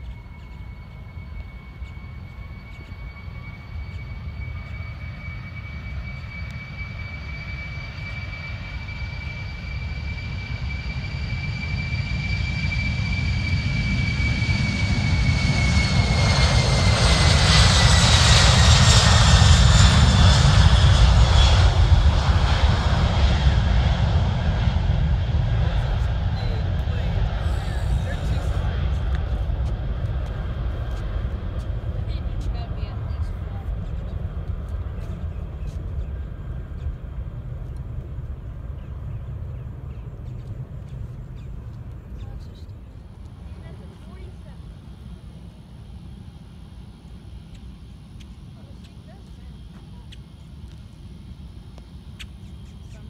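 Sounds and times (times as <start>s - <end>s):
jet engines at takeoff: 0.0s - 53.0s.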